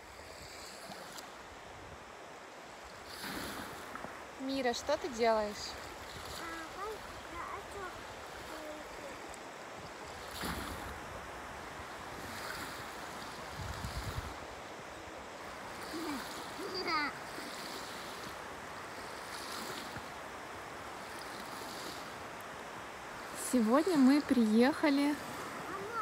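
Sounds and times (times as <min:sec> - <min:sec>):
small waves washing on sand: 0:00.0 - 0:26.0
wind: 0:00.0 - 0:26.0
child vocal sounds: 0:06.4 - 0:09.2, 0:15.9 - 0:17.2, 0:25.7 - 0:26.0.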